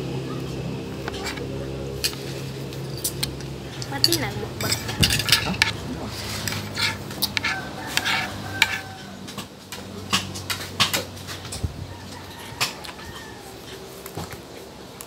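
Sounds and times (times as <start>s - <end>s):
fork scraping on plate: 1.0s - 2.4s, 3.0s - 9.1s.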